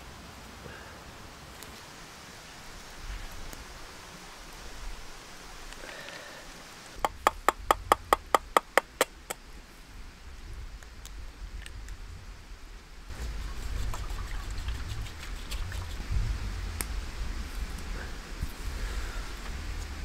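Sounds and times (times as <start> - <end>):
egg tapping on metal pan: 7.0 - 9.3.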